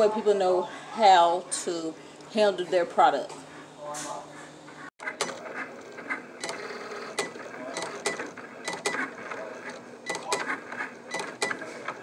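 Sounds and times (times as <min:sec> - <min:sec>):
cutting machine motors whirring: 0:05.0 - 0:12.0.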